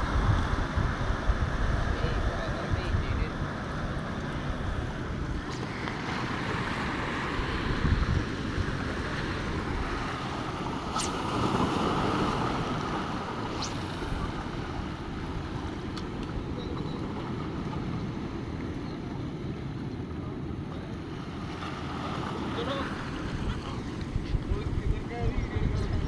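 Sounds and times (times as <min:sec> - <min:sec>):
wind rumbling on microphone: 0:00.0 - 0:26.0
sea washing against rocks: 0:05.6 - 0:15.7.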